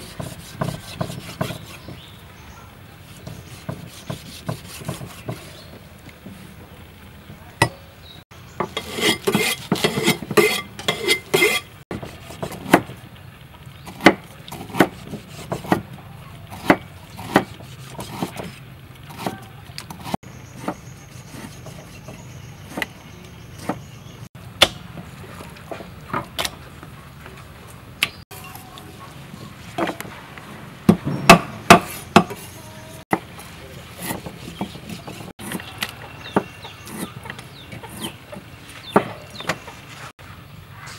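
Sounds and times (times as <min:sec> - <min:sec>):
cleavers chopping on wooden block: 0:00.1 - 0:02.1, 0:03.2 - 0:05.5, 0:13.9 - 0:15.9, 0:16.6 - 0:18.5, 0:30.9 - 0:32.4, 0:38.8 - 0:39.6.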